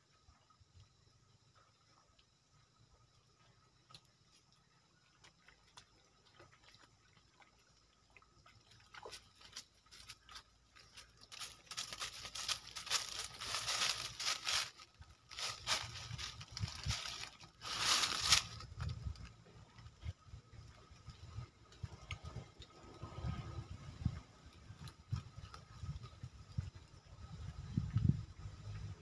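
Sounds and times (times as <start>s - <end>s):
faint ticks: 0.6s - 6.8s
rustling and crackling: 9.1s - 19.2s.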